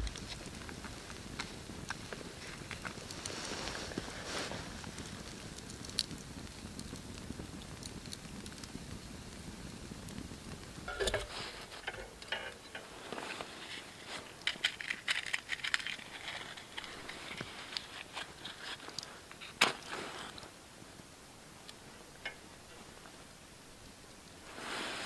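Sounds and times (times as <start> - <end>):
sharp metal clack: 10.9 - 12.6
lantern metal clicks and rattles: 10.9 - 19.9, 21.7 - 23.2.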